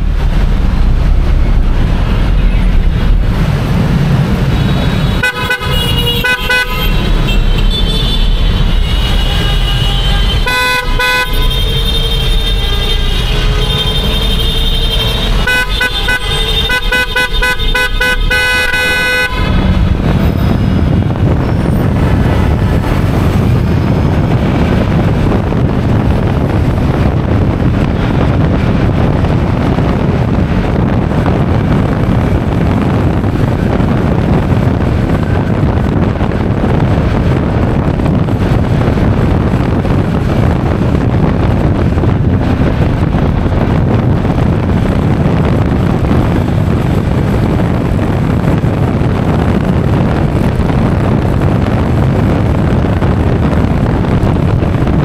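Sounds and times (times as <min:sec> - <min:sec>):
traffic noise: 0:00.0 - 0:55.0
wind rumble on microphone: 0:00.0 - 0:55.0
vehicle horn honking: 0:04.6 - 0:19.7.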